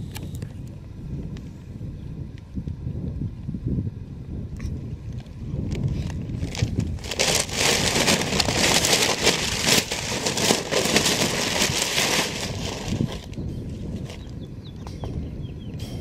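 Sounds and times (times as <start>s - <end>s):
paper bags crinkling and tearing: 6.0s - 13.4s, 14.0s - 14.3s.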